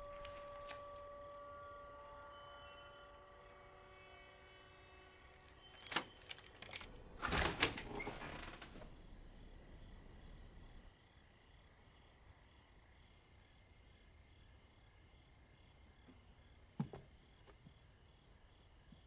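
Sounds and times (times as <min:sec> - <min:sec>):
low held music tones: 0:00.0 - 0:11.8
faint high steady tone: 0:00.0 - 0:12.7.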